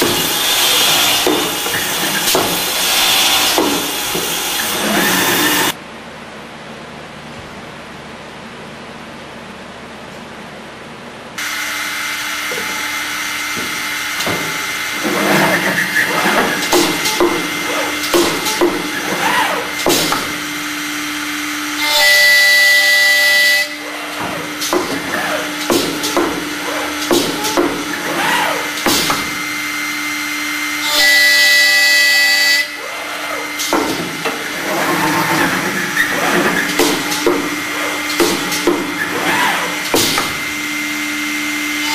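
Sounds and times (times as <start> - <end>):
drill bits rasping into wood: 0.0 - 5.7
sharp machine clunks: 0.0 - 5.8, 13.5 - 20.5, 24.0 - 29.5, 33.2 - 40.5
spindle motors whining: 0.0 - 5.8, 11.4 - 41.9
tool carriage rushing noise: 0.0 - 5.8, 11.4 - 41.9
machine steady hum: 0.0 - 41.9.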